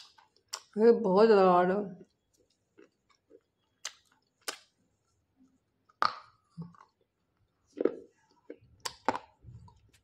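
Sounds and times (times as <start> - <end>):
clay crunching when bitten: 0.0 - 0.7.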